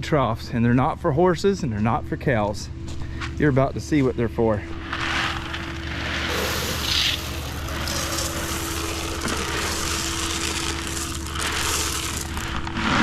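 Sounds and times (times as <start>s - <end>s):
generator humming: 4.2s - 13.0s
grain pouring into trough: 4.8s - 13.0s.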